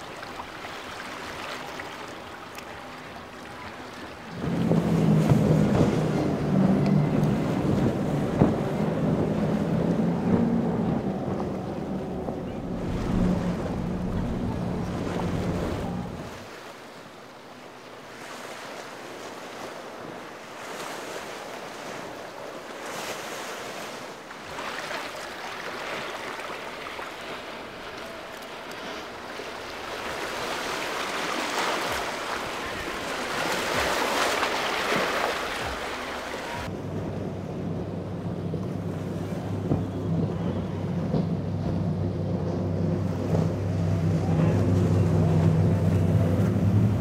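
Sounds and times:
waves breaking: 0.0 - 47.0
wind on microphone: 4.3 - 16.4.

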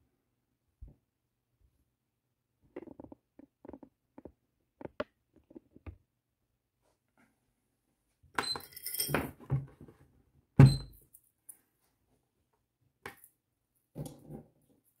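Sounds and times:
small metal objects clinking: 8.6 - 9.2.

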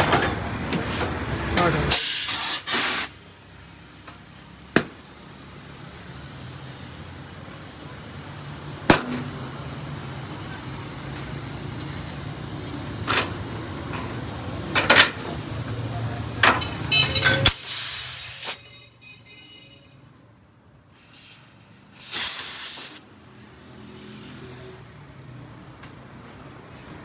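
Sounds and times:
air hissing into tyre: 1.9 - 3.4, 5.4 - 18.6, 20.9 - 23.2.

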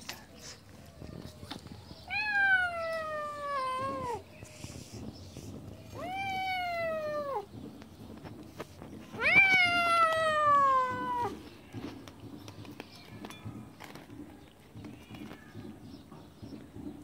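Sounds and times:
kitten meowing: 2.1 - 4.2, 6.0 - 7.5, 9.2 - 11.4.

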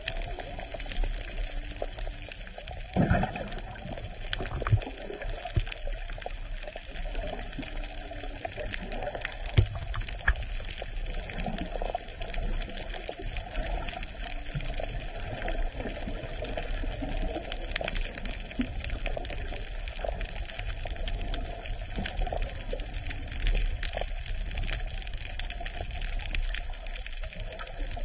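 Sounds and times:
underwater gurgling water: 0.0 - 28.0
sharp clicks and pops: 1.0 - 6.6, 8.8 - 11.6.

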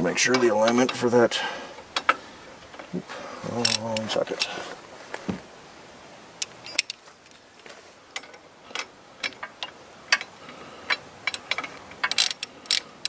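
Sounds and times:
socket ratchet clicking: 10.9 - 12.9.

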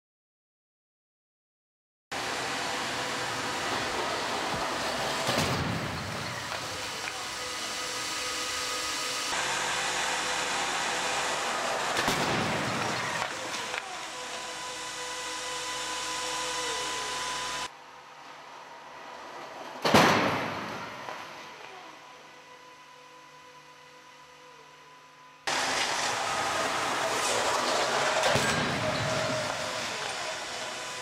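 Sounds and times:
crash barrier slamming into car: 19.8 - 21.1.

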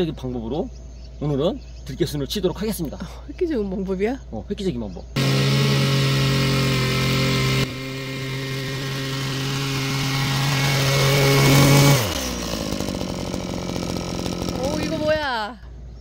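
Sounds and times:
small two-stroke engine: 5.2 - 15.9.

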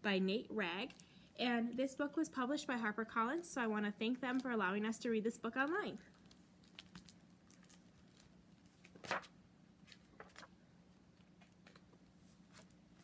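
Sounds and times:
book pages rustling: 5.6 - 13.0.

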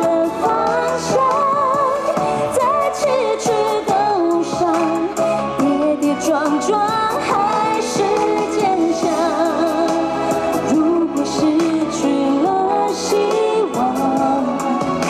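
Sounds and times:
pop backing track: 0.0 - 15.0
woman singing with vibrato: 0.0 - 15.0.

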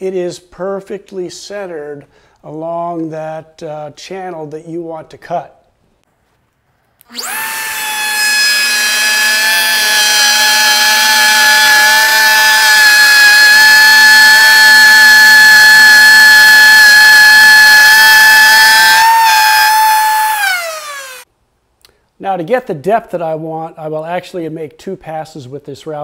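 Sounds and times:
router high-pitched whine: 7.1 - 21.2.

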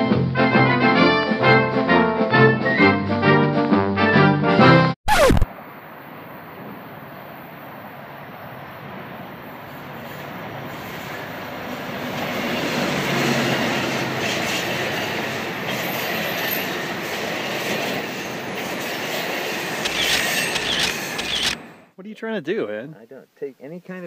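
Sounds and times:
diesel locomotive: 5.7 - 21.9
train wheels clattering and squealing: 9.7 - 21.7.

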